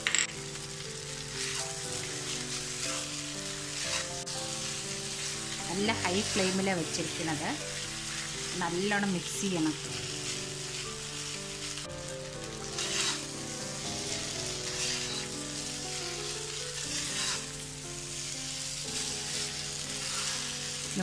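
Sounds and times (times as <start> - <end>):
noodles sizzling in a wok: 0.0 - 21.0
metal spatula scraping a wok: 1.4 - 5.4, 12.6 - 18.4, 19.0 - 20.8.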